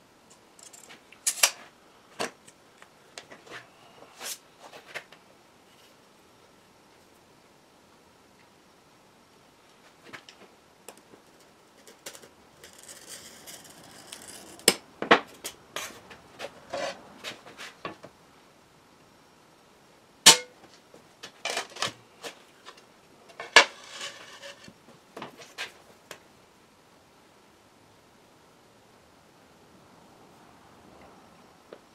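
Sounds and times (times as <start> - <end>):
glass snapping with ringing cracks: 20.3 - 20.6
glass cutter scoring glass: 23.3 - 24.7.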